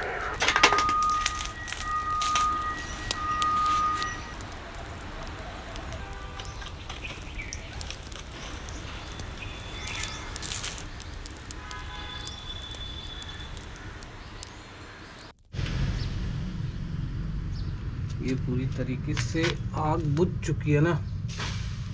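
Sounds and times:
wood fire crackling: 0.0 - 16.4.

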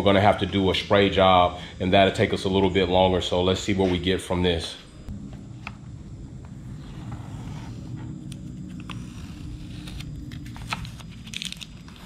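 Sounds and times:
steady low hum: 0.0 - 12.0
tape peeling off plastic: 8.2 - 12.0.

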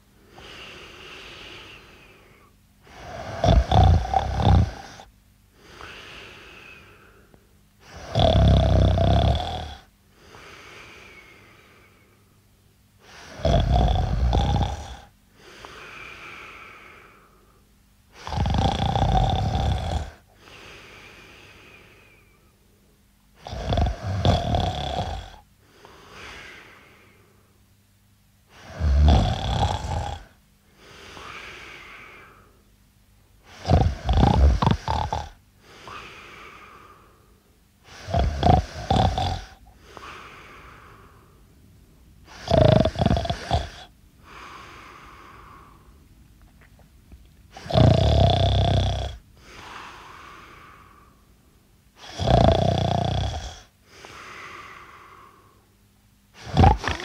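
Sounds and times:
soft breathing: 0.0 - 3.7, 4.7 - 8.1, 10.1 - 13.4, 15.3 - 18.3, 20.0 - 23.0, 25.6 - 27.6, 29.8 - 32.7, 33.4 - 42.5, 43.1 - 47.8, 49.2 - 52.1, 53.5 - 55.8
man snoring: 2.9 - 7.0, 7.8 - 11.4, 13.1 - 17.2, 18.2 - 22.0, 23.4 - 27.0, 28.6 - 32.5, 33.5 - 37.0, 37.9 - 41.2, 42.3 - 45.9, 47.5 - 51.1, 52.0 - 55.3, 56.4 - 57.0.

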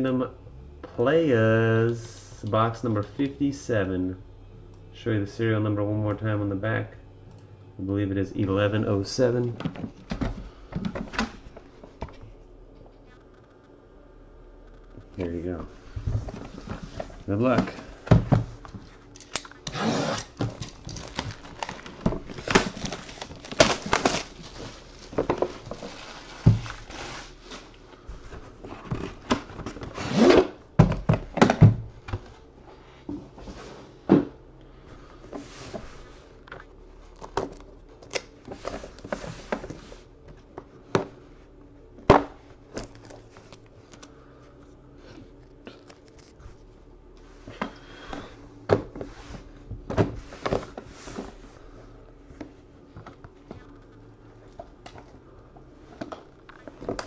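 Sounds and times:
plastic wrap tearing and crinkling: 19.1 - 27.8.

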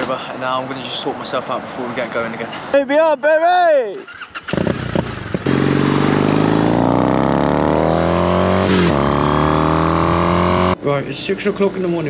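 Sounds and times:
motorcycle engine accelerating: 4.1 - 10.8.

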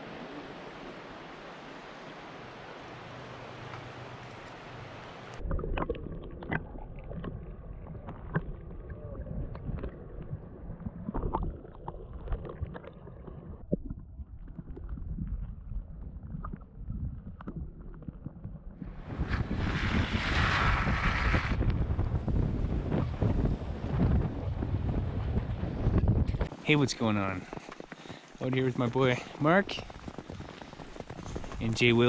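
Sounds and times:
muffled underwater rushing: 0.0 - 32.0
bubbles and pebbles clicking: 5.4 - 18.8, 26.3 - 32.0
wind buffeting microphone: 13.4 - 32.0.

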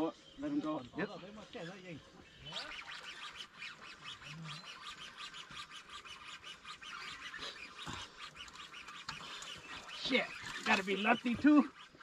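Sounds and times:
fishing reel drag clicking: 1.6 - 12.0.

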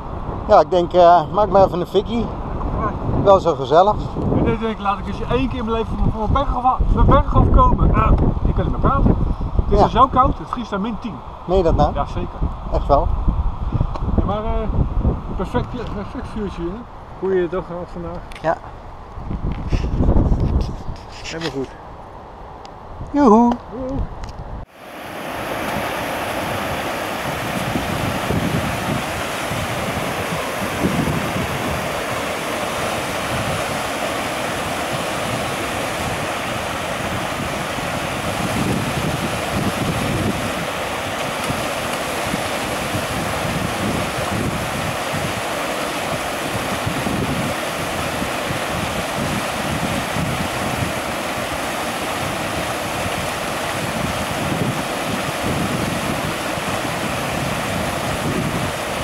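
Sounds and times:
stream rushing over rocks: 24.7 - 59.0.

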